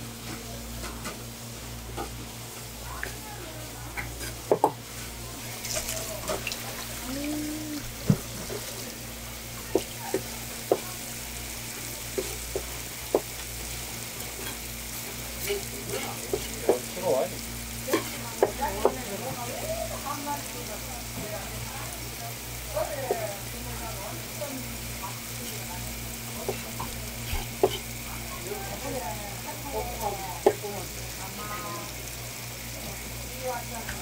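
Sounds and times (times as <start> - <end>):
water spraying from hose nozzle: 4.2 - 19.1, 21.3 - 32.0
knife tapping and scraping board: 9.7 - 10.9, 12.2 - 13.3, 15.9 - 16.8, 17.9 - 19.0, 26.4 - 27.8.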